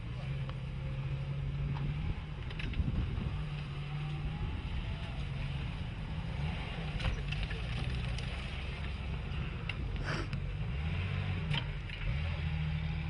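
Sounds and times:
car engine running: 0.0 - 13.0
wind buffeting microphone: 1.9 - 5.2.

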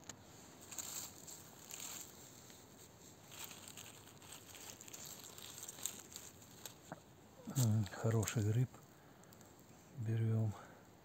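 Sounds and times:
dry leaves rustling and crackling: 0.4 - 8.7.

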